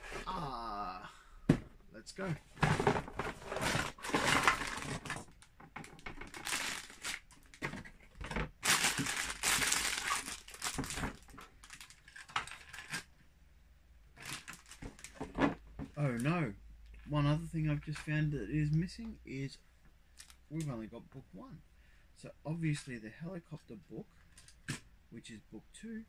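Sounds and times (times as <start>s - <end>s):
cardboard box being opened: 2.6s - 5.3s
plastic bags crinkling: 2.7s - 13.1s, 14.2s - 15.4s, 20.2s - 20.4s.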